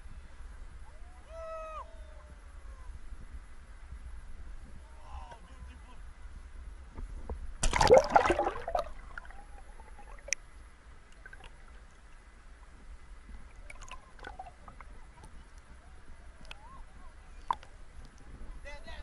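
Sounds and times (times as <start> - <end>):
water splashing and gurgling: 7.6 - 10.4, 11.0 - 12.3, 13.3 - 15.4
faint clicks: 16.4 - 16.7, 17.4 - 18.3.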